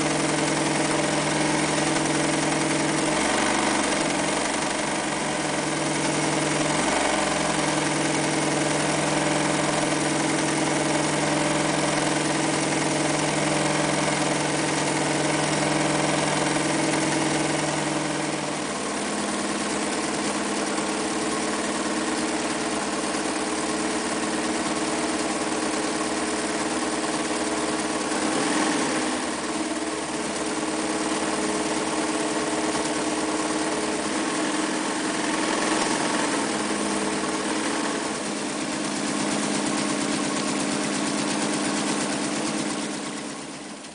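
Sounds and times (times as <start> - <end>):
sewing machine running: 0.0 - 20.8.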